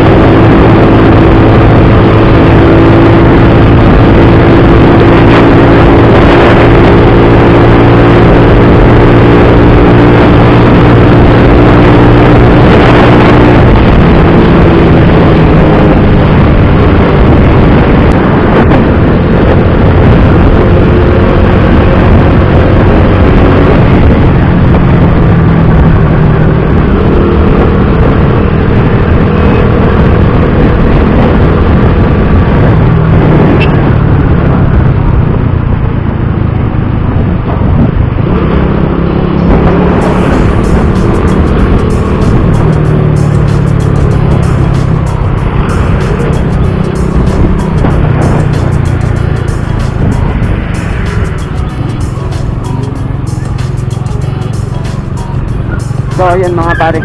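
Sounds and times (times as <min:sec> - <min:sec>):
wind rush: 0:00.0 - 0:57.0
scooter engine running: 0:39.4 - 0:57.0.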